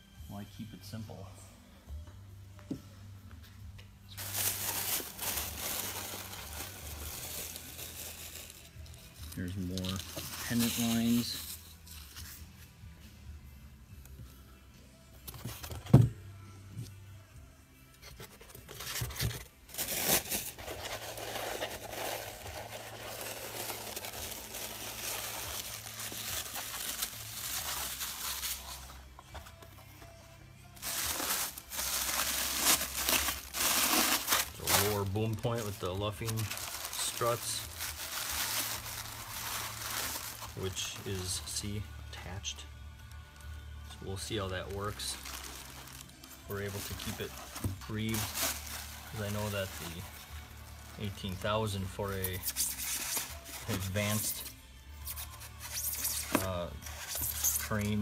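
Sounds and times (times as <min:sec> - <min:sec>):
paper wrapping crinkling: 0:04.1 - 0:12.4, 0:18.1 - 0:29.7, 0:30.8 - 0:41.3, 0:44.3 - 0:54.4, 0:55.1 - 0:58.0
plastic crackles: 0:18.9 - 0:28.9, 0:30.8 - 0:41.0, 0:44.7 - 0:51.4.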